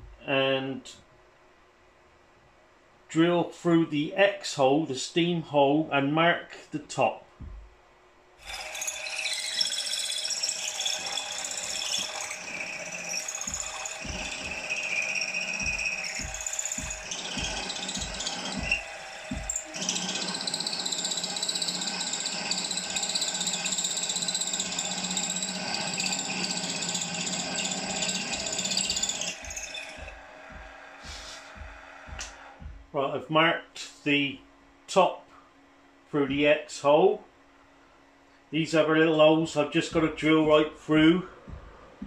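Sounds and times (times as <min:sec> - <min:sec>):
drill bit scraping metal: 0:08.4 - 0:32.7
drill motor whine: 0:08.4 - 0:32.8.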